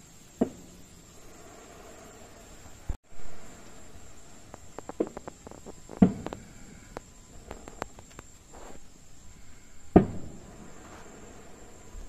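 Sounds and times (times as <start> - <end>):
firework pops and cracks: 4.4 - 8.9, 9.9 - 11.3
distant firework boom: 4.5 - 7.8, 9.8 - 11.5.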